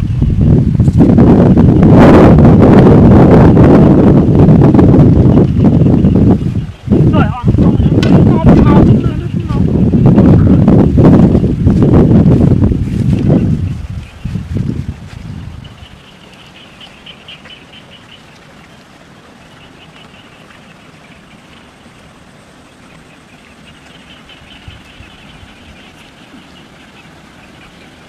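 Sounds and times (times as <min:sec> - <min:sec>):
chirring chorus of small animals: 0:15.4 - 0:28.0.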